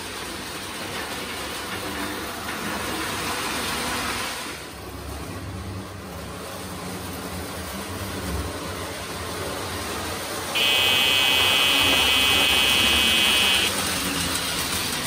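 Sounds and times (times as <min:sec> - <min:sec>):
electric buzzer horn: 0:10.6 - 0:13.8.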